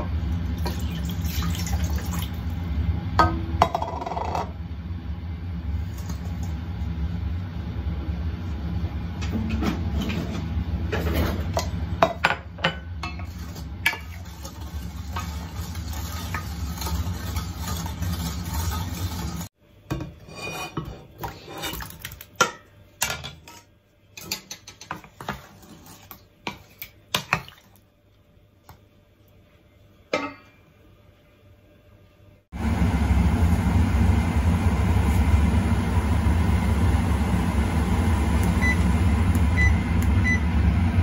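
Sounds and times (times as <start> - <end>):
dishes clinking against steel pot: 11.6 - 14.2, 30.1 - 30.6
steady low hum: 32.6 - 41.0.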